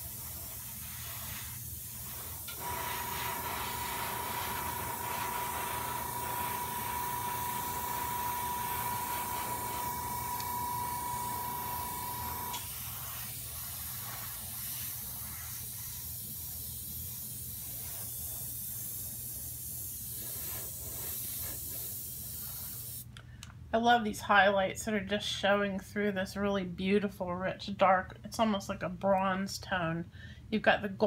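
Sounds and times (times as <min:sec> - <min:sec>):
airbrush air hiss: 0:00.0 - 0:23.1
whine with low hum: 0:02.5 - 0:12.7.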